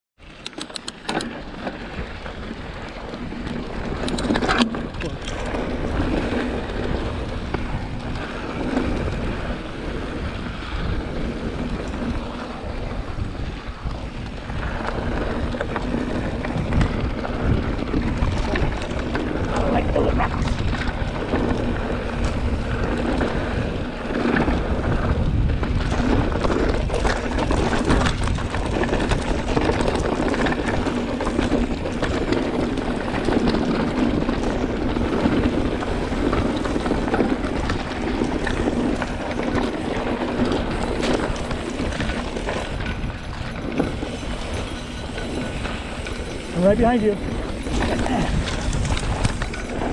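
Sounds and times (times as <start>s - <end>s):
bike rattling: 0.2s - 49.9s
wind buffeting microphone: 1.4s - 49.9s
tyres crunching over stones: 25.6s - 49.9s.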